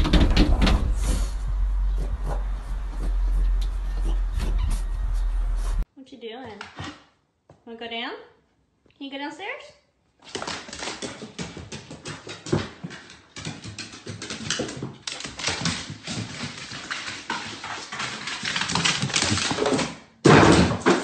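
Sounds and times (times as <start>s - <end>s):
dog claws clicking on wooden stairs: 10.3s - 20.0s.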